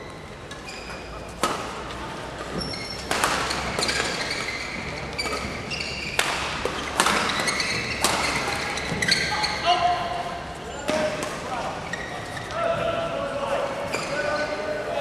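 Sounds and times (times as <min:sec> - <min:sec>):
shoes squeaking on floor: 0:00.0 - 0:01.4, 0:02.3 - 0:12.9, 0:13.8 - 0:14.8
rackets hitting shuttlecock: 0:01.4 - 0:09.2.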